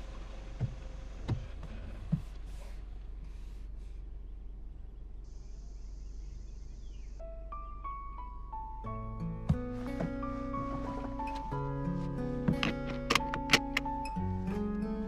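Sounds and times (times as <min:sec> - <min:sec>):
car interior low hum: 0:00.0 - 0:15.0
soft thumps: 0:09.4 - 0:11.6.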